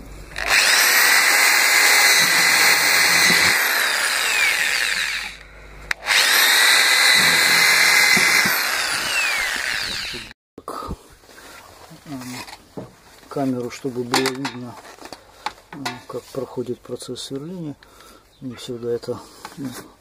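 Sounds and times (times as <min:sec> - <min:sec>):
electric drill boring plastic: 0:00.2 - 0:10.4.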